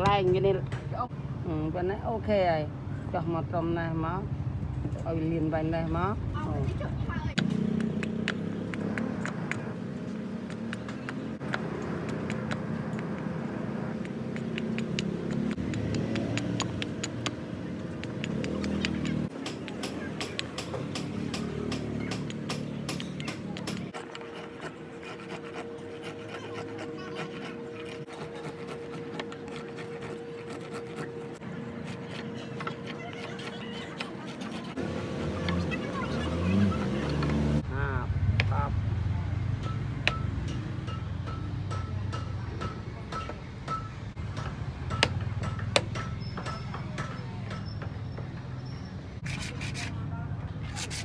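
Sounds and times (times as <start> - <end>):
file rasping wood: 13.9 - 35.7, 49.2 - 50.0, 50.7 - 51.0
wooden handle knocking on anvil: 39.6 - 48.3.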